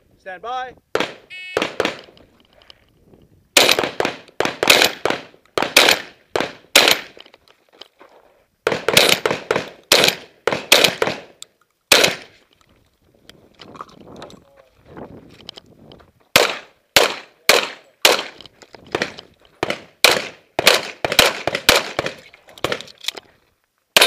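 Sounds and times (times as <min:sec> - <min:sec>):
shotgun shots: 0:00.9 - 0:02.2, 0:03.6 - 0:07.2, 0:08.6 - 0:12.4, 0:16.3 - 0:22.9.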